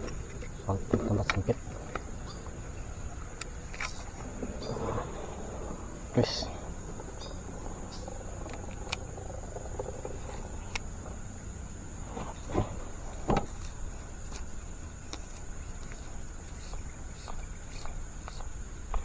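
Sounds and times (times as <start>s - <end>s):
high-pitched insect drone: 0.0s - 19.0s
low background rumble: 0.0s - 19.0s.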